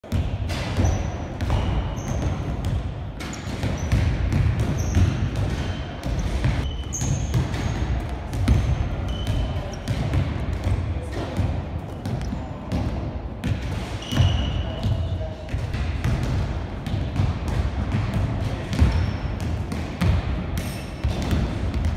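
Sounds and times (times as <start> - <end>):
basketball bouncing on wooden floor: 0.1 - 10.8, 15.6 - 21.9
shoes squeaking on floor: 0.8 - 2.5, 4.7 - 7.8, 8.5 - 9.9, 13.9 - 15.3.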